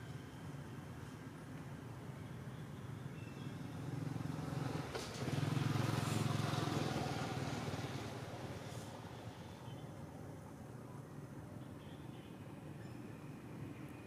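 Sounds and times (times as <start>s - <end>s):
vehicle engine passing by: 3.8s - 9.1s.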